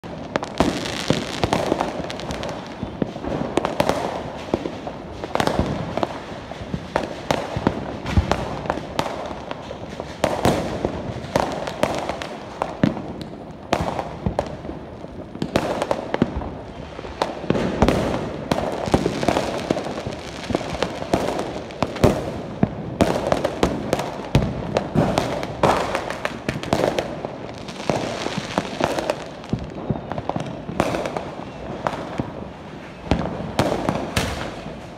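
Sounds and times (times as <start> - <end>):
fireworks and firecrackers banging: 0.0 - 34.9.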